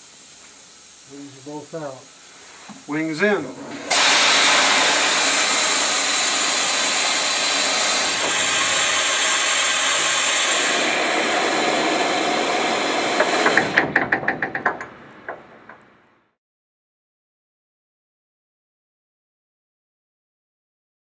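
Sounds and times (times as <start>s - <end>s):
compressed air hissing: 0.0s - 13.9s
quick run of knocks: 13.1s - 16.0s.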